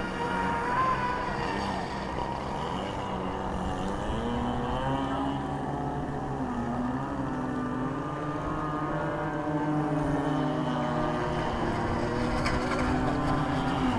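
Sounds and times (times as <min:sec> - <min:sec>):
model speedboat engine buzzing: 0:00.0 - 0:13.9.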